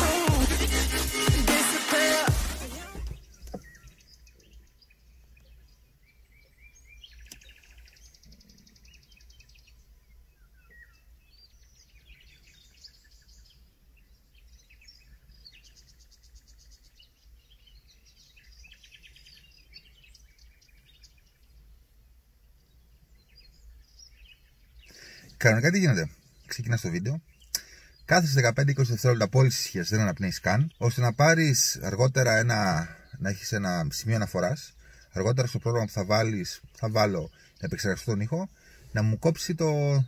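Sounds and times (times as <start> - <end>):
songbirds chirping: 0.0 - 40.0
click: 7.3 - 7.5.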